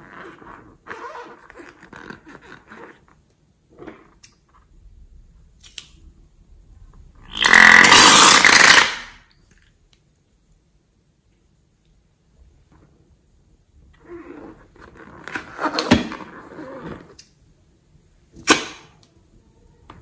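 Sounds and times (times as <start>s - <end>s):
rubber balloon creaking: 0.0s - 4.2s, 7.2s - 9.2s, 14.0s - 17.2s
air spurting from balloon neck: 7.3s - 9.2s.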